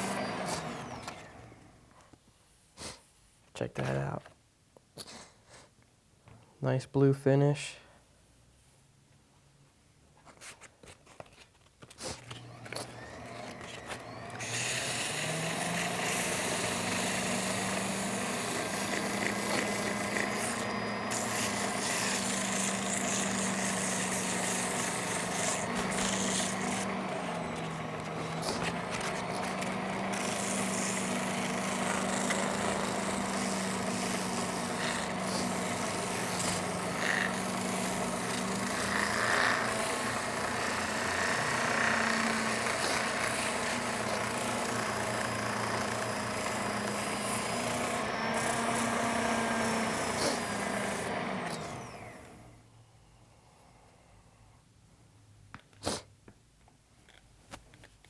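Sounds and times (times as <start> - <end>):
lathe motor humming: 0.0 - 1.7, 12.4 - 52.5
sandpaper rasping on cork: 18.4 - 26.9.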